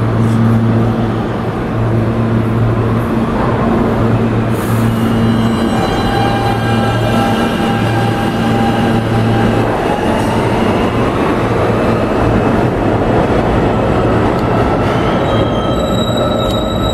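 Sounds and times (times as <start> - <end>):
wheels rumbling on rail: 0.0 - 16.9.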